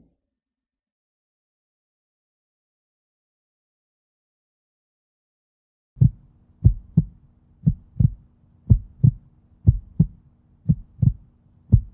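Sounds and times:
faint steady hum: 6.0s - 11.9s
heartbeat double thumps: 6.0s - 11.9s.

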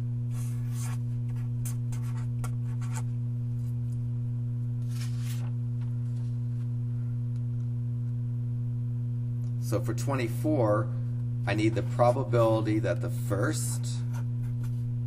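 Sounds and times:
electrical hum: 0.0s - 15.0s
marker pen scratching on paper: 0.3s - 3.1s
paper sliding and rustling: 4.8s - 5.5s.

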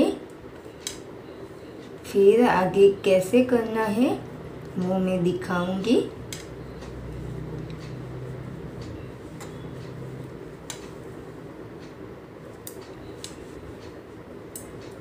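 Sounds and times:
knitting needles clicking: 8.8s - 11.0s, 12.6s - 15.0s.

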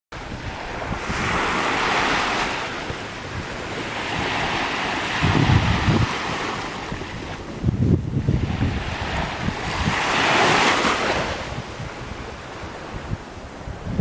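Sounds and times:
surf washing on beach: 0.2s - 14.0s
wind buffeting microphone: 0.2s - 14.0s.

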